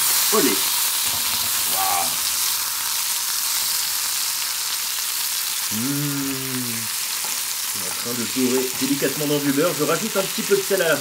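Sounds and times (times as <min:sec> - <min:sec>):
mushrooms sizzling in butter: 0:00.0 - 0:11.0
person vocalizing: 0:01.7 - 0:02.3, 0:05.6 - 0:07.0.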